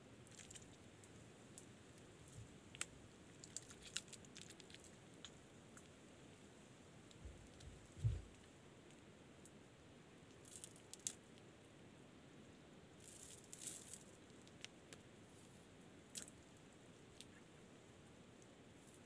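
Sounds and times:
wet squishes and crackles of mud: 0:00.3 - 0:01.2, 0:02.2 - 0:06.0.

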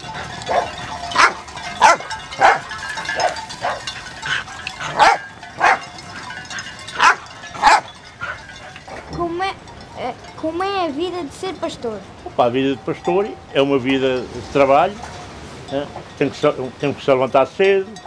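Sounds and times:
dog barking: 0:00.4 - 0:03.9, 0:04.9 - 0:05.8, 0:07.0 - 0:08.4.

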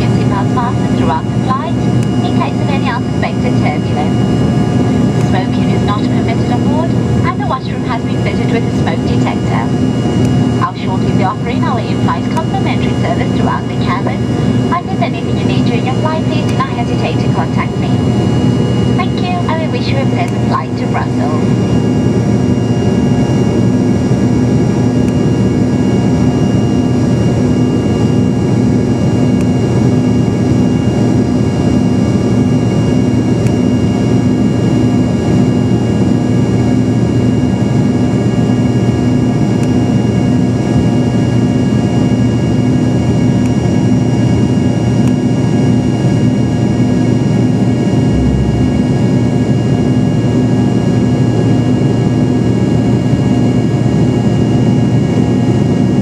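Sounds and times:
jet engines whining: 0:00.0 - 0:56.0
low rumble: 0:47.6 - 0:50.5
rushing airflow: 0:47.8 - 0:50.2.

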